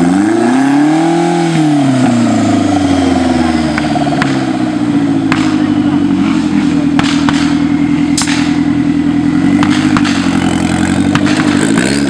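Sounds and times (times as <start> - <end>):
buggy engine revving high: 0.0 - 12.0
sharp knocks and clatters: 6.9 - 8.7, 9.6 - 12.0.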